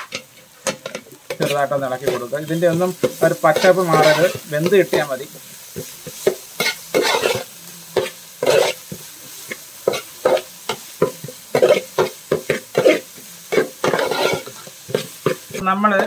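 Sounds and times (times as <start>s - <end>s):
vegetables sizzling in oil: 0.0s - 16.0s
metal ladle scraping a pan: 3.0s - 4.5s, 6.6s - 8.8s, 11.5s - 15.6s.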